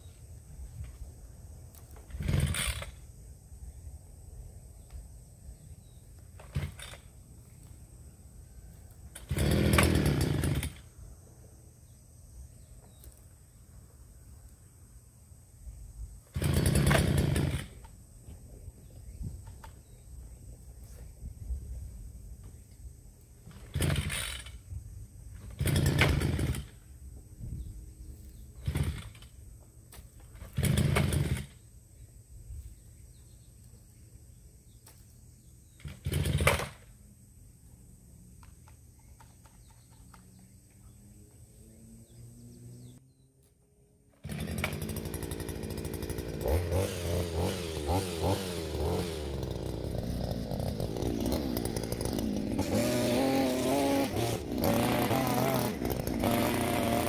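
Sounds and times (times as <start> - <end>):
recoil starter cranking: 2.1 - 3.0, 9.2 - 10.8, 16.3 - 17.8, 23.5 - 24.6, 25.4 - 26.8, 28.6 - 29.3, 30.4 - 31.5, 35.8 - 36.8, 44.2 - 57.0
two-stroke engine running: 25.5 - 26.7, 44.2 - 57.0.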